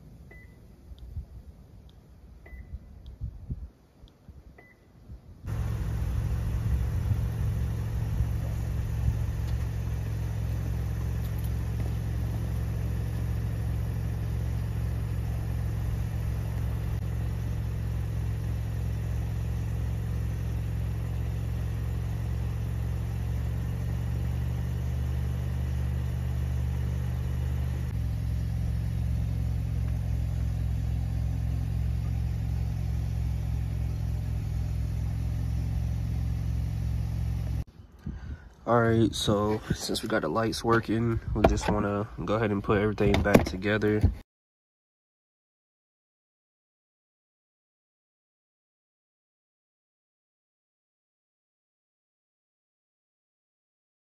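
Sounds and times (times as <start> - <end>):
car engine idling: 5.5 - 44.2.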